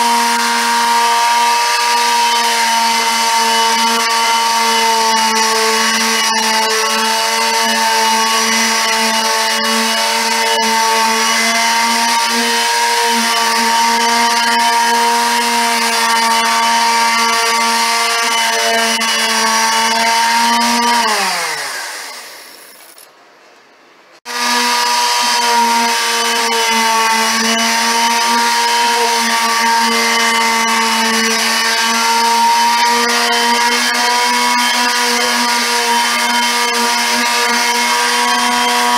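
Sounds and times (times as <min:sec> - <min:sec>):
electric palm sander running: 0:00.0 - 0:22.6, 0:24.3 - 0:38.9.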